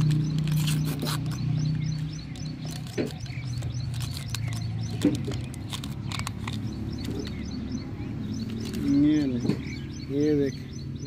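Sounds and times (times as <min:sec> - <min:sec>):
paper packet crinkling: 0:00.0 - 0:01.5, 0:02.6 - 0:06.7.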